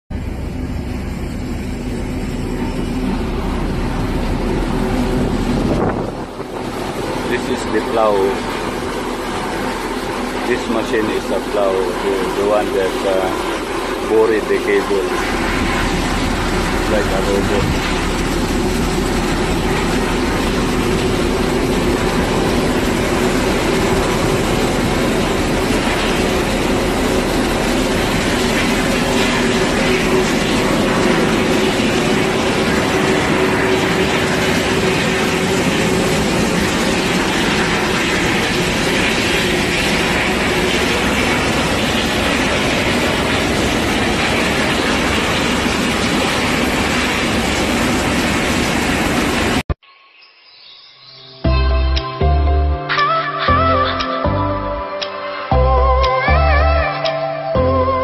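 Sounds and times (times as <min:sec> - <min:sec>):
ship engines rumbling: 0:00.1 - 0:49.7.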